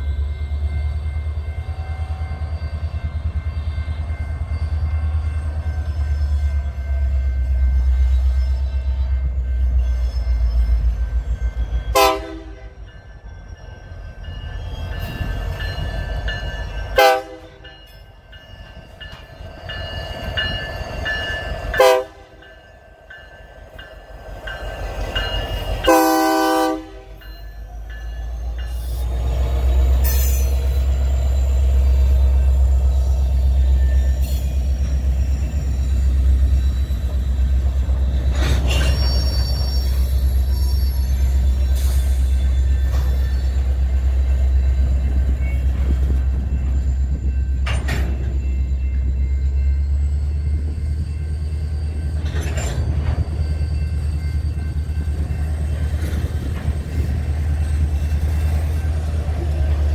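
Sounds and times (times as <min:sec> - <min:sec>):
diesel locomotive horn blasts: 0:11.9 - 0:12.8, 0:17.0 - 0:17.7, 0:21.8 - 0:22.4, 0:25.8 - 0:27.2.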